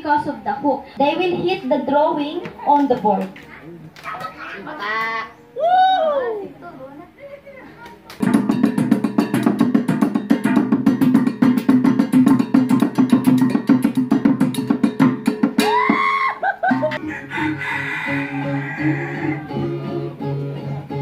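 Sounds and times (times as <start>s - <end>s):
plucked string instrument: 8.0s - 16.0s, 16.6s - 21.0s
fast dense percussion: 8.2s - 16.0s.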